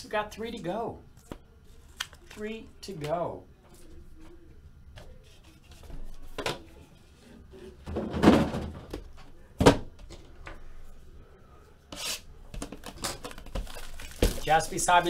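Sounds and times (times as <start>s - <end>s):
cardboard boxes thunking on table: 7.9s - 9.0s.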